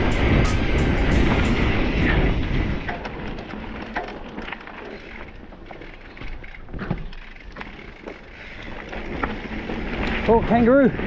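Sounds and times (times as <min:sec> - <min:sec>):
wind on microphone: 0:00.0 - 0:03.6
tyres crunching over dirt: 0:02.2 - 0:11.0
bike clicks and knocks: 0:02.7 - 0:10.8.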